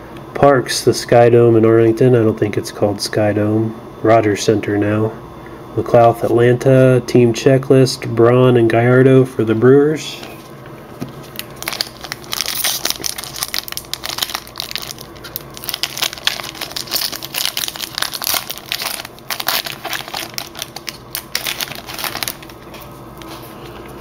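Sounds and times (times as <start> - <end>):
foil wrapper crinkling: 11.2 - 23.8.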